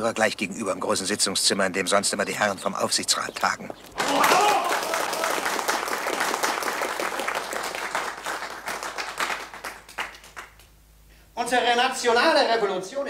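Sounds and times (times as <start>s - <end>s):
audience applauding: 4.0s - 10.7s.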